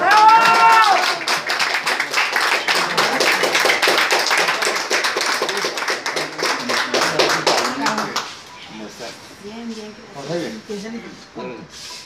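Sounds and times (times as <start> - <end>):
people clapping: 0.0 - 8.5.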